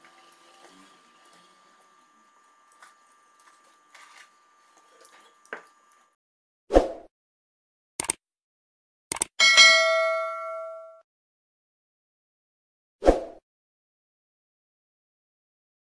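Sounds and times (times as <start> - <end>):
sharp click: 8.0 - 8.2, 9.1 - 9.4.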